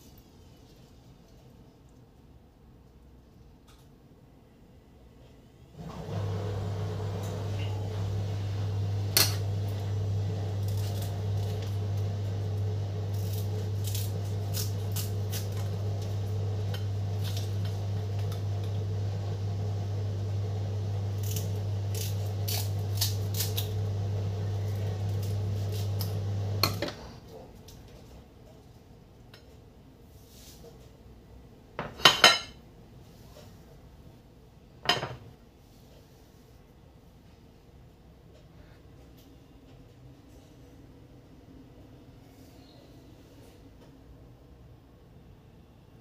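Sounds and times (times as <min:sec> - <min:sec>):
scissors snipping leaves: 0:10.6 - 0:11.7, 0:13.1 - 0:15.8, 0:21.2 - 0:23.8, 0:24.7 - 0:26.2.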